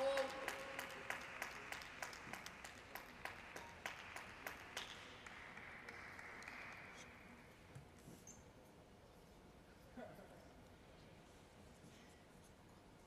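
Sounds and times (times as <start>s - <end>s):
audience applause: 0.2s - 7.0s.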